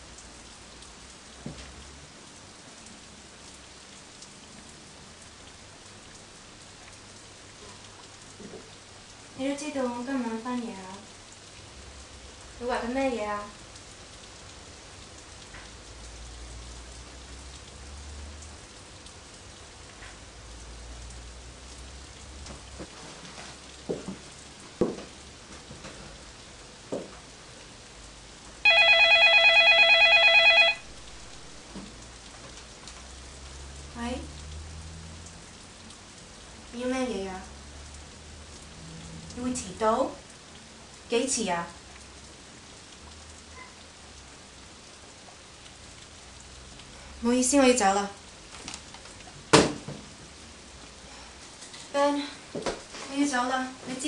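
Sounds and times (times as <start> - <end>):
falling water hiss and patter: 0.0 - 54.0
electronic telephone ringing: 28.6 - 30.9.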